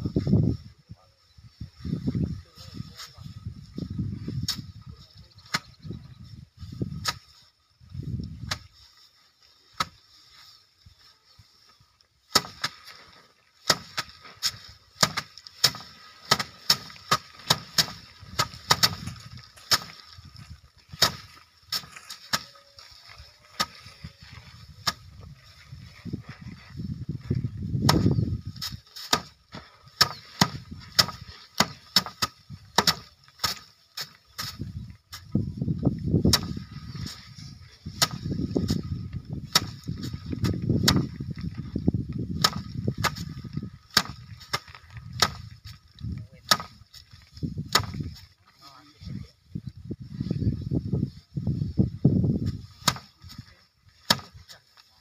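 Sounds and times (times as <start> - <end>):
rice sheaves beaten on wooden rack: 12.3 - 13.0, 13.6 - 20.1, 20.9 - 22.6, 23.6 - 23.8, 24.8 - 25.1, 27.8 - 34.6, 36.2 - 37.2, 37.9 - 41.2, 42.4 - 45.6, 46.4 - 47.0, 47.6 - 48.2, 52.7 - 53.4, 54.0 - 54.6.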